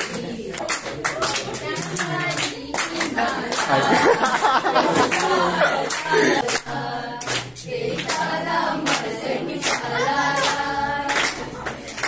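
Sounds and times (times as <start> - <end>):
group of voices singing: 0.0 - 12.0
hands clapping: 0.0 - 12.0.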